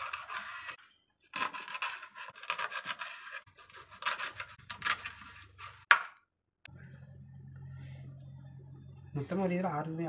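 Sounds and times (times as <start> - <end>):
knife sawing through fish: 0.0 - 4.6.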